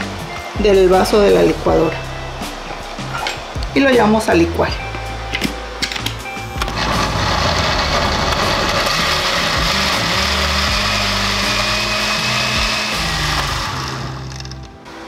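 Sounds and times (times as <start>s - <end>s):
blender running: 6.6s - 14.4s.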